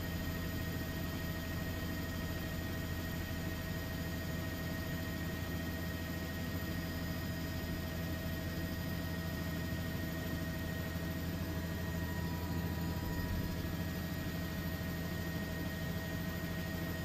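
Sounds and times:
aircraft drone: 0:10.0 - 0:17.0.

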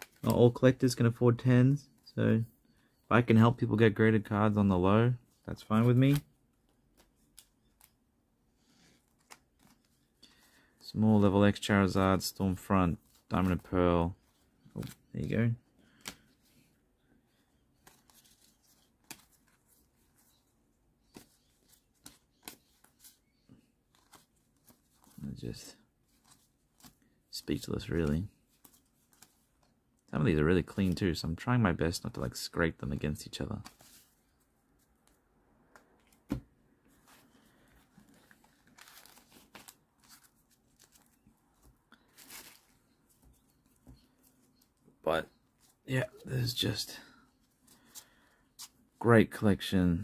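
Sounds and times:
trading cards clicking and sliding: 0:21.0 - 0:25.2.

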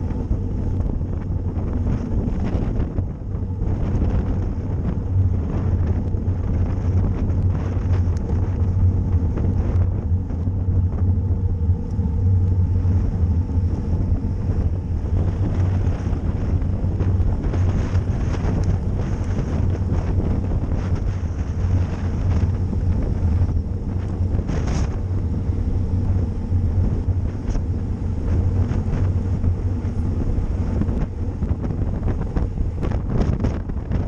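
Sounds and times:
steady low rumble: 0:00.0 - 0:34.0
wind buffeting microphone: 0:00.0 - 0:34.0.

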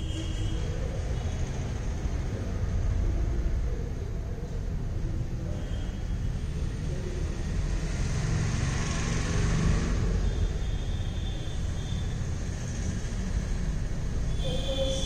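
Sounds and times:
faint high steady tone: 0:14.3 - 0:15.0.

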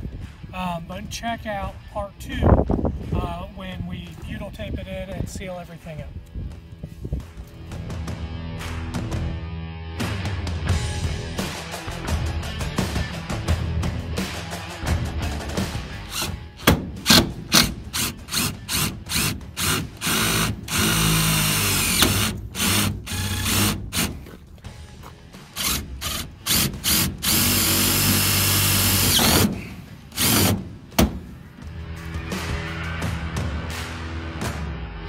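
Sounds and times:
impact driver driving screws: 0:16.1 - 0:24.3, 0:25.6 - 0:31.2.

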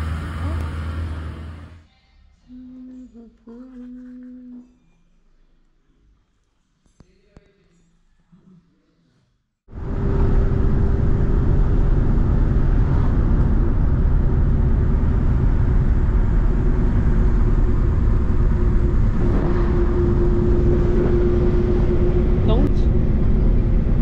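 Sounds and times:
engine and road rumble: 0:00.0 - 0:01.8, 0:09.7 - 0:24.0.

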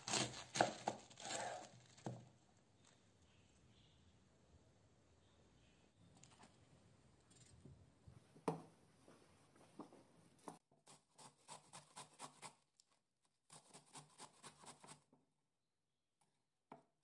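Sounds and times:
cabbage scraped on metal grater: 0:00.0 - 0:01.8.

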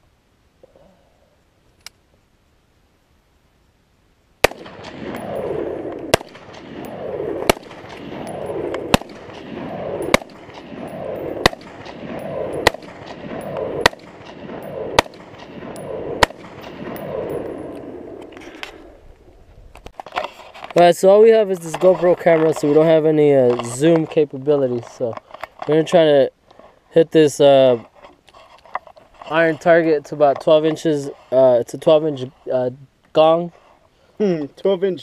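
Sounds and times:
rifle shots with echo: 0:04.4 - 0:18.3.

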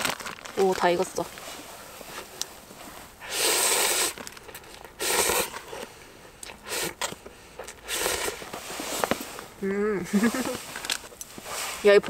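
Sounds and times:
person slurping noodles: 0:03.2 - 0:04.3, 0:05.0 - 0:10.8.

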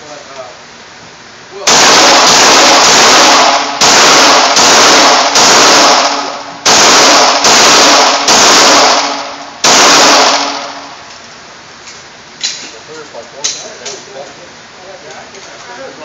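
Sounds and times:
pistol shots echoing indoors: 0:01.7 - 0:11.0.

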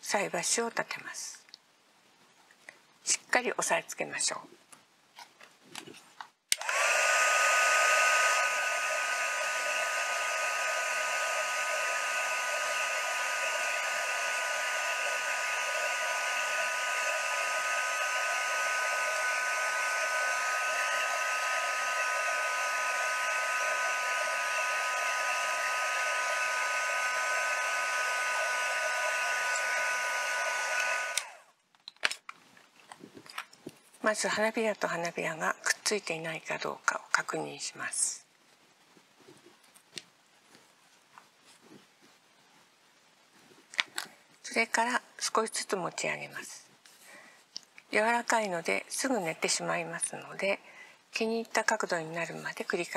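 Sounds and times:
heat tool blowing air: 0:06.5 - 0:31.5.

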